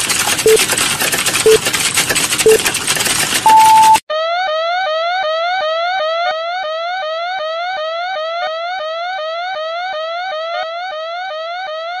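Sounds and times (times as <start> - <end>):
electronic timer alarm whooping: 3.5 - 12.0.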